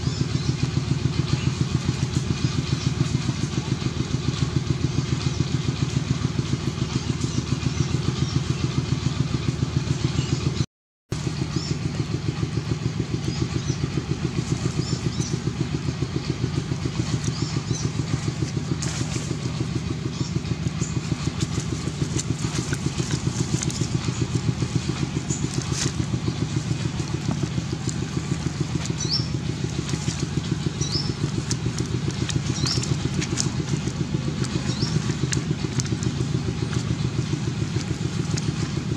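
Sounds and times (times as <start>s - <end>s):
engine running steadily: 0.0s - 38.9s.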